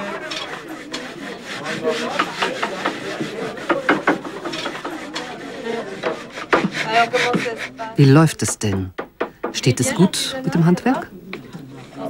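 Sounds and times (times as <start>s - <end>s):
hand tools rasping wood: 0.0s - 9.6s.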